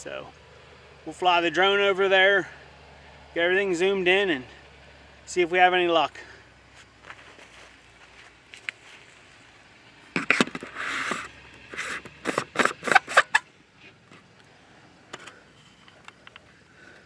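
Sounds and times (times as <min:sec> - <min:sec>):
short scrape: 0:10.2 - 0:14.0.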